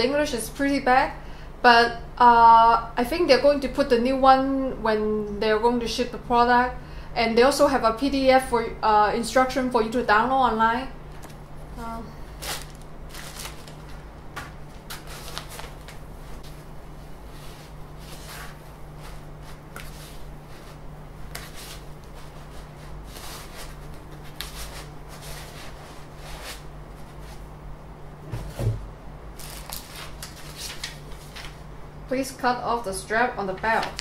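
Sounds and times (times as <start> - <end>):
steady low hum: 0.0 - 34.0
plastic packaging crinkling: 12.3 - 14.0, 29.4 - 31.6.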